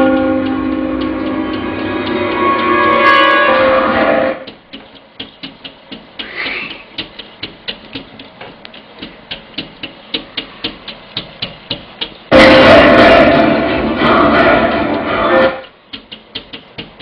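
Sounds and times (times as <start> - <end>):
sharp clicks: 4.4 - 12.3.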